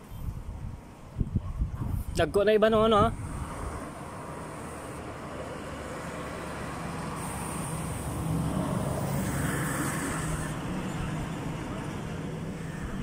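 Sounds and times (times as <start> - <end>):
road traffic rumble: 0.0 - 13.0
vehicle engine low hum: 3.1 - 13.0.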